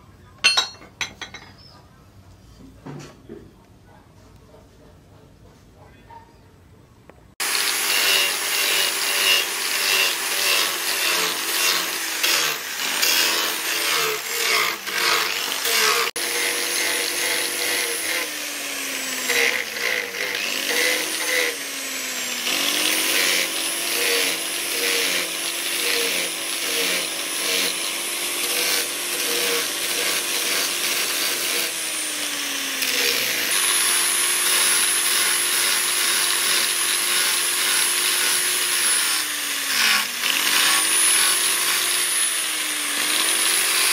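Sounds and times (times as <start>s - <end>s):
angle grinder grinding steel: 0.4s - 1.7s, 7.4s - 43.9s.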